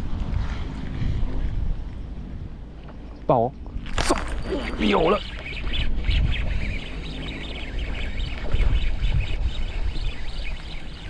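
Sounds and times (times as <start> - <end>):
wind rumbling on microphone: 0.0 - 11.0
high bird chirps: 4.4 - 11.0.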